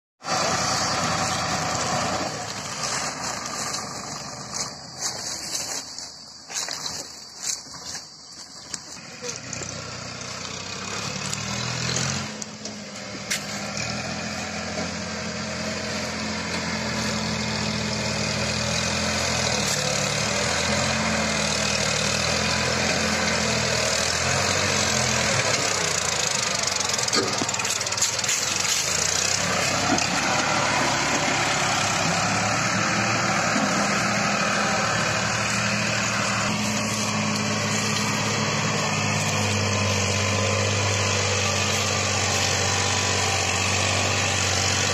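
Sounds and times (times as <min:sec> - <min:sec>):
tractor engine under heavy load: 0:00.2 - 0:44.9.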